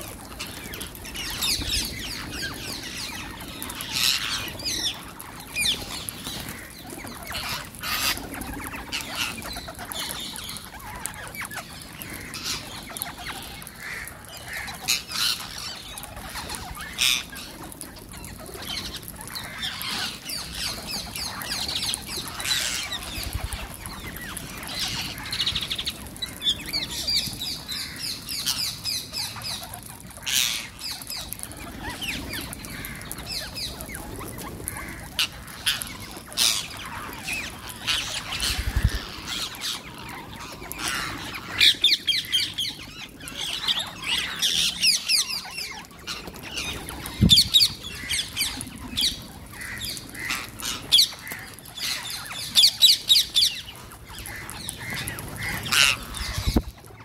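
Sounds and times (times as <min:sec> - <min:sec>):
wings flapping: 0:00.0 - 0:28.6
parakeets screeching: 0:00.4 - 0:57.0.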